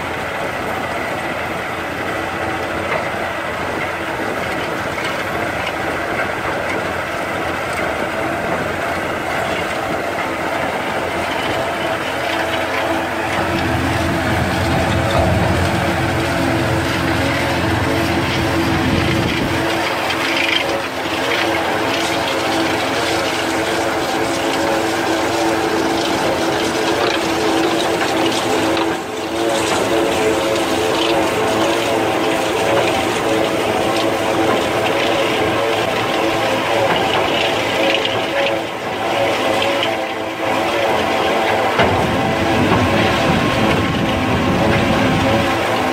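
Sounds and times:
tractor engine under load: 0.0 - 45.9
verge cutter churning turf: 0.0 - 45.9
deeper rumble: 8.2 - 34.8.

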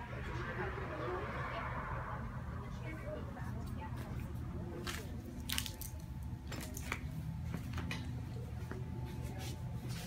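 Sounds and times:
faint footsteps: 3.8 - 10.0.

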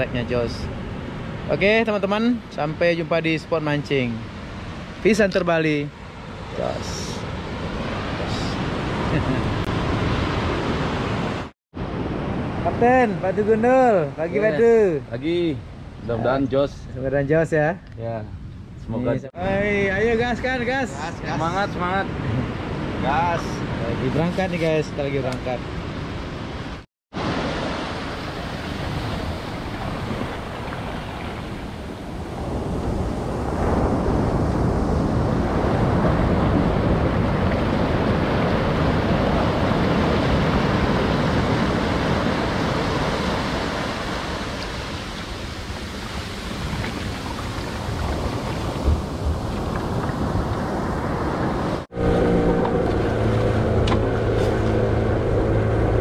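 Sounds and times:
water rushing along boat: 0.0 - 15.9, 19.6 - 56.0
wind on microphone: 25.9 - 56.0
boat engine humming: 51.9 - 56.0.

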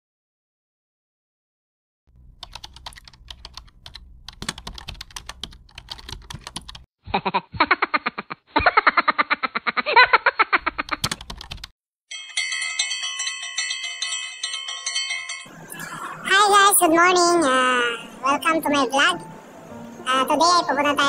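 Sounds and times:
low hum: 2.1 - 5.8
keyboard typing clicks: 2.4 - 6.9, 10.9 - 11.7.

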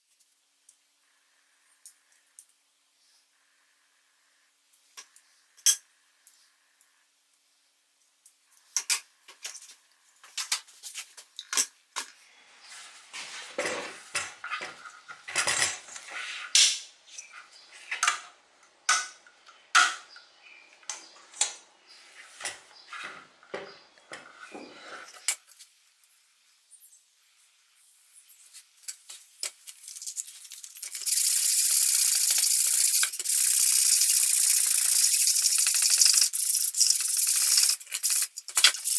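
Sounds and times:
metal parts clicking on workbench: 35.5 - 38.9.

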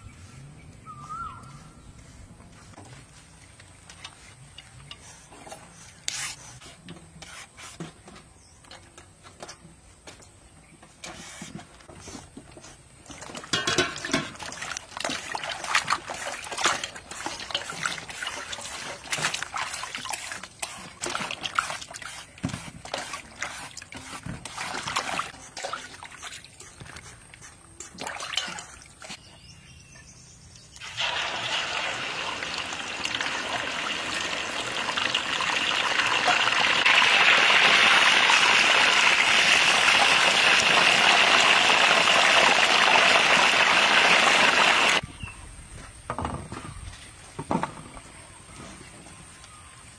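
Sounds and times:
chicken sizzling in hot oil: 30.8 - 45.0.

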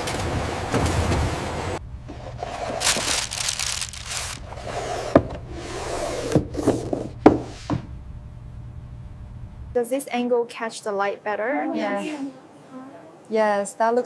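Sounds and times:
low steady hum: 0.1 - 5.6, 6.4 - 13.9
cardboard boxes and ribbon rustling: 2.4 - 4.4.

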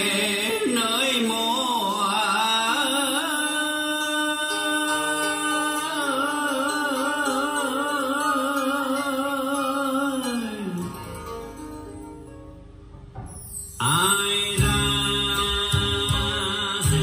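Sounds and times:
man singing over speakers: 0.0 - 10.9, 13.8 - 17.0.

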